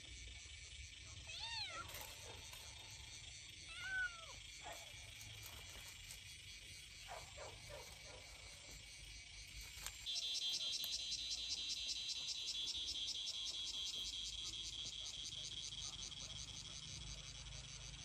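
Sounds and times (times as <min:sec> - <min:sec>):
insects trilling: 0:00.0 - 0:18.0
faint kitten mews: 0:03.7 - 0:04.4.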